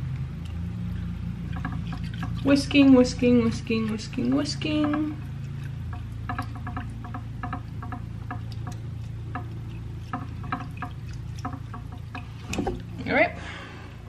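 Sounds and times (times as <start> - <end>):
whisk beating in ceramic bowl: 1.6 - 5.3.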